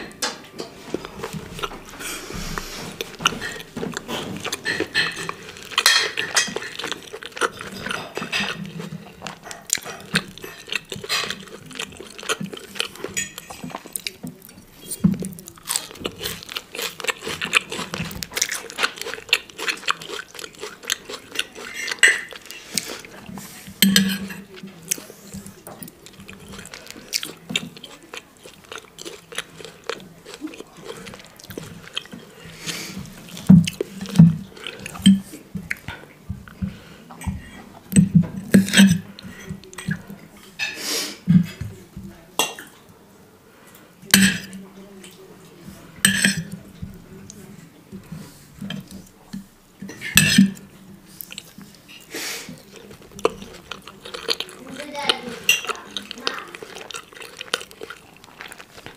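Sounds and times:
chewing and wet mouth sounds: 0:00.8 - 0:40.6, 0:43.7 - 0:58.9
cutlery clinking on china plate: 0:04.6 - 0:07.0, 0:13.0 - 0:13.8, 0:23.8 - 0:24.5, 0:38.0 - 0:40.0, 0:46.0 - 0:46.6, 0:49.9 - 0:50.6.

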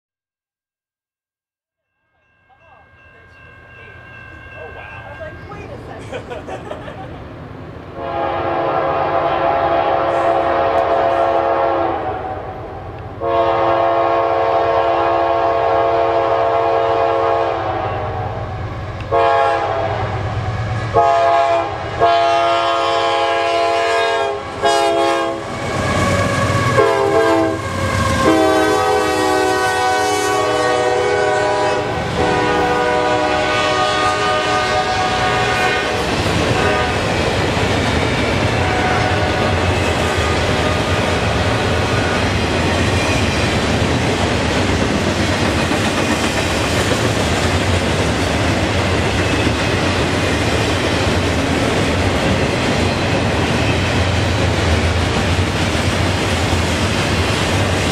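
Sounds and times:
freight train rolling past: 0:02.2 - 0:57.9
locomotive air horn blasts: 0:08.0 - 0:12.5, 0:13.2 - 0:37.1, 0:38.6 - 0:41.2.

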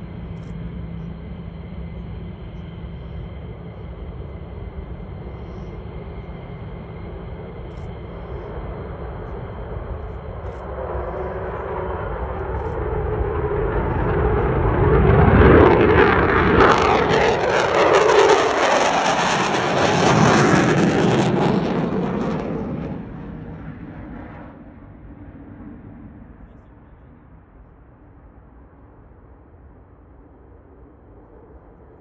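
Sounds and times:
jet engines passing overhead: 0:00.0 - 0:32.0.

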